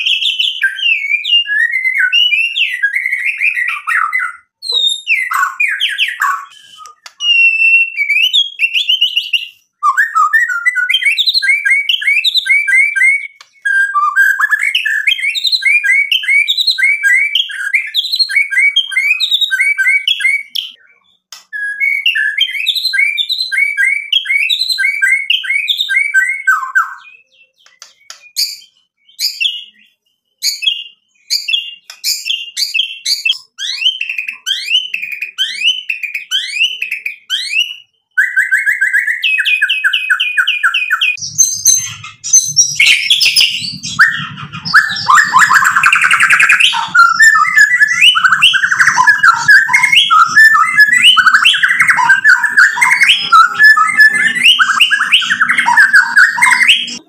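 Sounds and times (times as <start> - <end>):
bird singing whistled notes: 0.0 - 57.0
sharp clicking bird notes: 5.3 - 7.5, 21.3 - 21.6, 27.6 - 28.7, 31.8 - 32.3.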